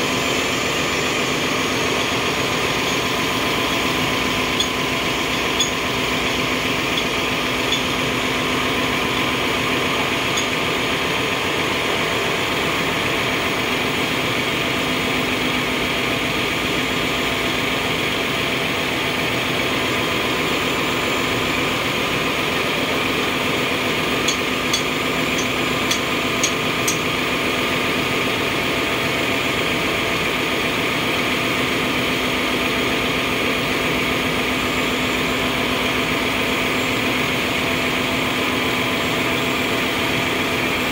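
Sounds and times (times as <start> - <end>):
engine-room machinery drone: 0.0 - 40.9
metal tool taps and clinks: 4.6 - 5.8, 7.7 - 7.9.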